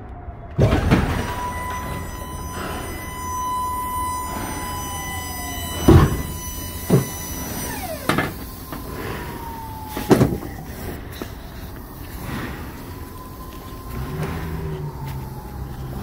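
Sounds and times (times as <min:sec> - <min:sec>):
high whine sliding down: 0:00.0 - 0:16.0
truck low rumble: 0:00.0 - 0:16.0
loud clunks: 0:00.6 - 0:08.5.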